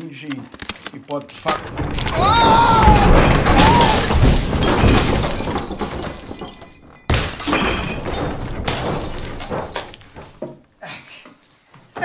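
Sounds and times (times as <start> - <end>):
glass bottles smashing: 1.4 - 10.6
wooden rack crashing down: 1.4 - 10.6.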